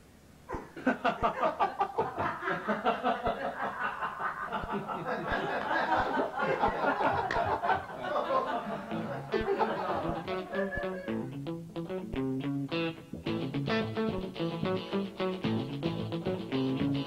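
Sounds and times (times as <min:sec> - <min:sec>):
men laughing: 0:00.7 - 0:11.3.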